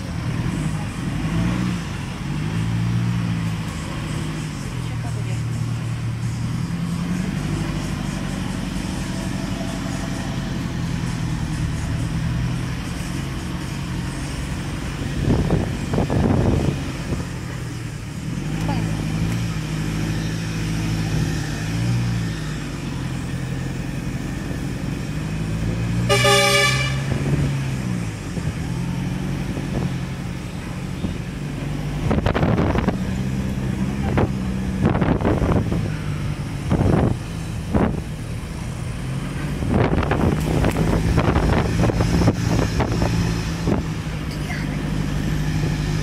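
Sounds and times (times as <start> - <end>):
car engine running: 0.0 - 46.0
car horn toot: 26.1 - 27.2.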